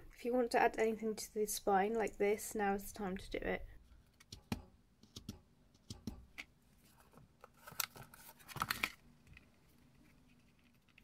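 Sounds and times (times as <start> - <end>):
card rustling and clattering: 6.8 - 11.0.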